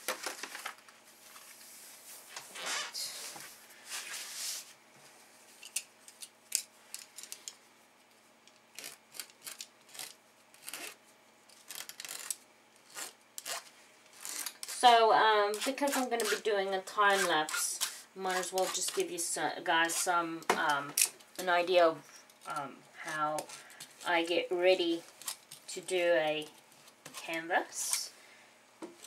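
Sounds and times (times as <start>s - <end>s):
hand tool scraping plastic film: 8.7s - 14.9s, 15.5s - 16.5s, 17.1s - 19.1s.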